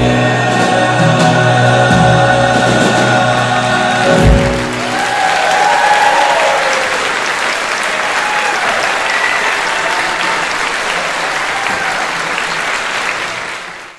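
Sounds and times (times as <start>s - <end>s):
audience applauding: 3.3s - 13.9s
people cheering: 3.6s - 13.9s.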